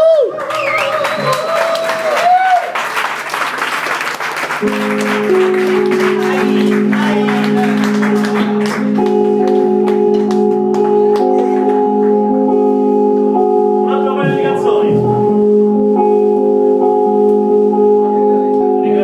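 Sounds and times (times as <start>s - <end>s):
garage band sustained chords: 4.6s - 19.0s.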